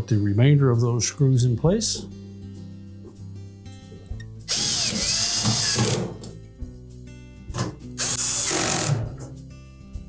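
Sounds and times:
power drill driving screws into metal: 4.5s - 6.3s, 8.0s - 9.2s.

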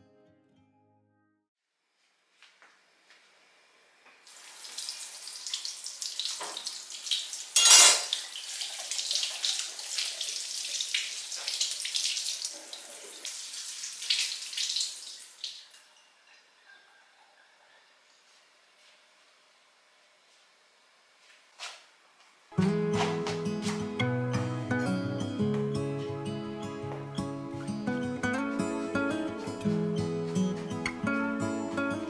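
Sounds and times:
kitchen faucet running: 4.3s - 15.9s.

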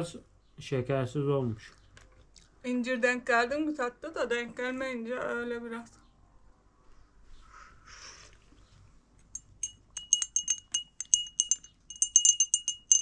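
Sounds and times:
teaspoon clinking against glass: 9.3s - 13.0s.

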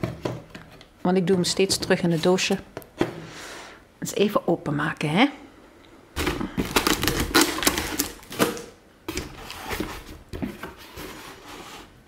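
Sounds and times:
packing tape crackling: 6.2s - 8.7s
cardboard rustling: 6.2s - 12.0s.

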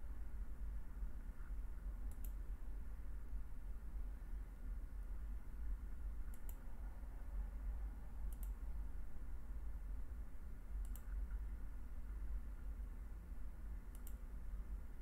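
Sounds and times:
low steady hum: 0.0s - 15.0s
mouse button clicking: 13.9s - 14.2s.

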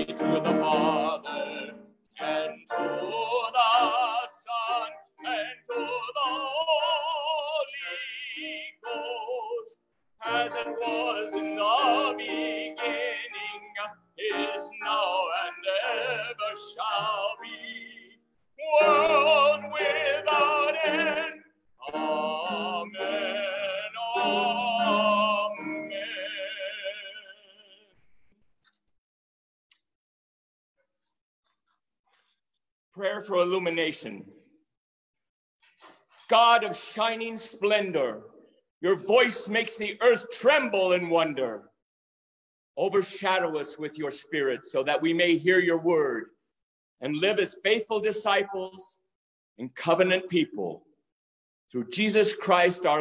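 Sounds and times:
man singing with vibrato: 0.0s - 28.0s, 36.3s - 38.1s.

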